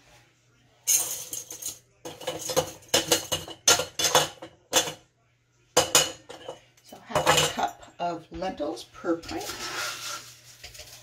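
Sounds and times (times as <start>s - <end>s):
lentils clattering into glass jars: 0.9s - 5.0s.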